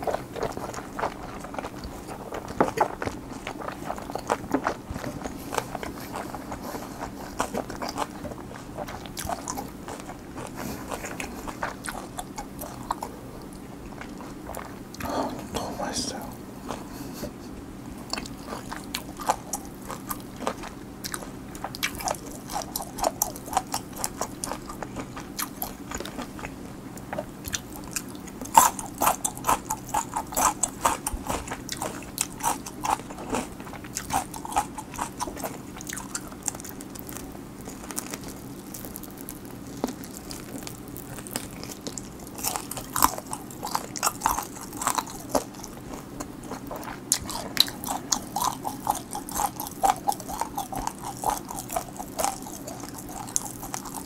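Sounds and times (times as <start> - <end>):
crunching and chewing: 0.0 - 54.0.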